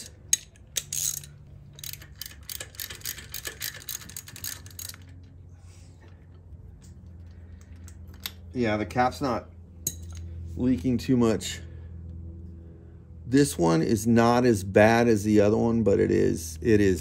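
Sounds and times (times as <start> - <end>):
ratchet wrench clicking: 0.0 - 5.1.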